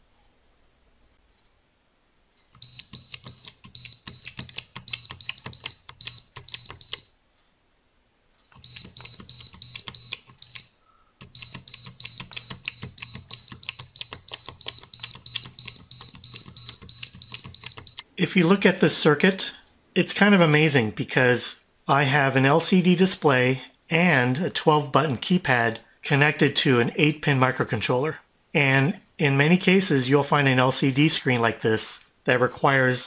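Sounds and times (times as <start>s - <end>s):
keypad key clicks: 2.6s - 7.1s, 8.5s - 18.0s
short high buzzer beeps: 8.6s - 10.8s.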